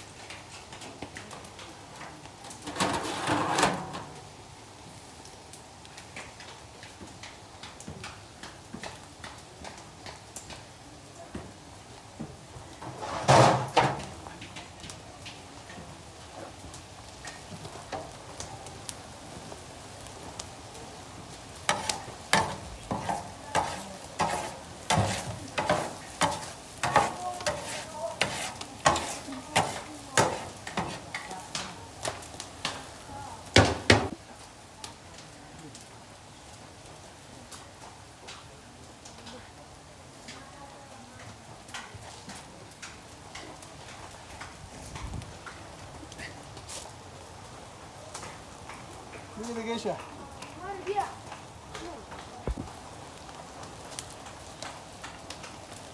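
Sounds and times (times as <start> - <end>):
metal skimmer scraping a pot: 2.6 - 4.2.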